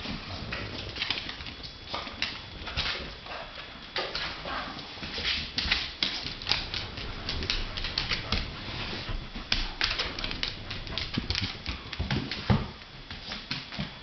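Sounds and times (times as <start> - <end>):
dog claws clicking on wooden floor: 5.3 - 8.6, 9.5 - 14.0.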